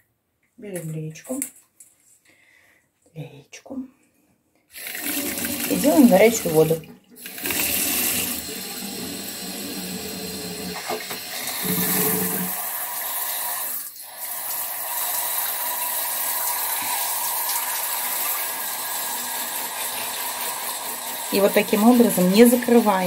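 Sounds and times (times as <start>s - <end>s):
shower spray hissing: 11.4s - 23.0s.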